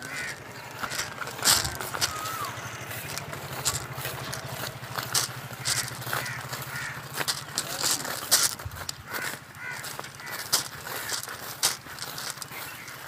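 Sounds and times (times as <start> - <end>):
low pulsing hum: 0.0 - 9.6
crows cawing: 0.0 - 13.0
footsteps through tall grass: 0.0 - 13.0.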